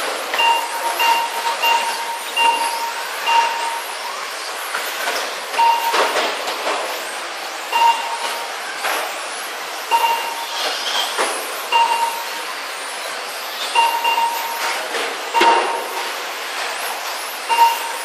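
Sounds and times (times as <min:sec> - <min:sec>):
short electronic beeps: 0:00.3 - 0:04.0, 0:05.5 - 0:06.3, 0:07.7 - 0:08.4, 0:09.9 - 0:10.6, 0:11.7 - 0:12.4, 0:13.7 - 0:15.8, 0:17.5 - 0:18.0.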